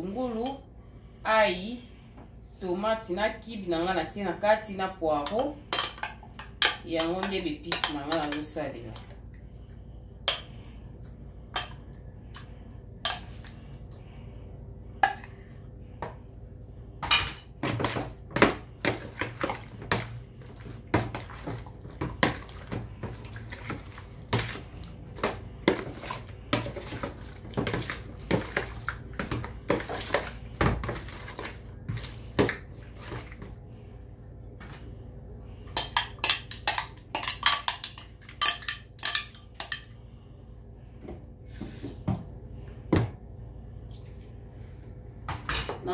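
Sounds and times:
hands mixing food in a basin: 2.6s - 14.4s, 17.5s - 34.7s, 40.9s - 43.2s.

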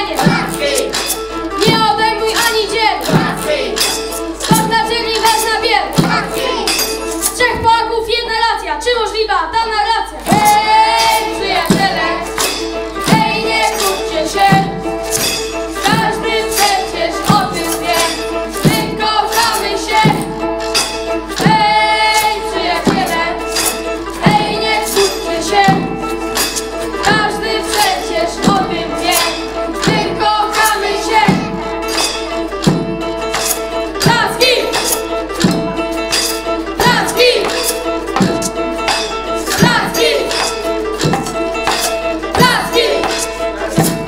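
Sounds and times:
boy singing into microphone: 0.0s - 3.8s, 4.4s - 12.3s, 36.8s - 37.7s, 39.4s - 40.6s, 42.4s - 44.0s
homemade percussion beat: 0.0s - 7.9s, 10.2s - 44.0s
acoustic guitar chords: 10.2s - 44.0s.

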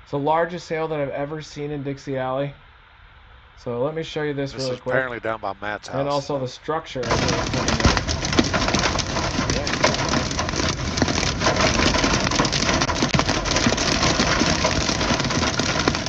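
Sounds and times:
steady rushing noise: 3.2s - 16.0s
hail pelting vehicle roof: 7.0s - 16.0s.

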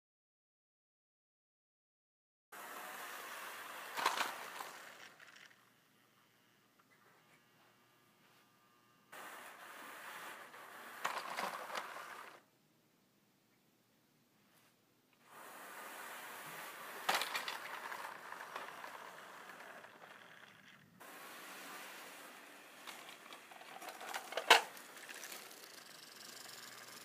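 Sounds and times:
model trains rolling rattle: 2.6s - 5.7s, 9.2s - 12.4s, 15.3s - 27.0s
model train cars colliding: 2.7s - 5.6s, 9.2s - 12.4s, 15.4s - 27.0s.

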